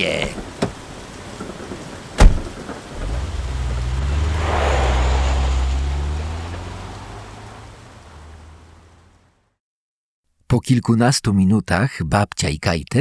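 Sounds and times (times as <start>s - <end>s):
car door slamming: 2.2s - 3.2s
car engine pulling away: 2.8s - 9.5s.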